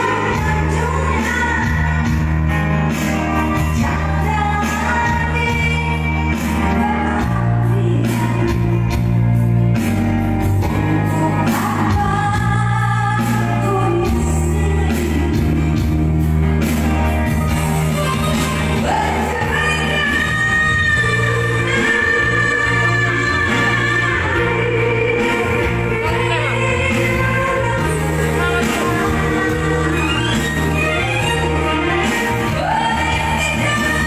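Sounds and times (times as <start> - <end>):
woman singing high through microphone: 0.0 - 2.4, 3.5 - 9.2, 10.7 - 16.2, 17.9 - 34.0
backing music: 0.0 - 34.0.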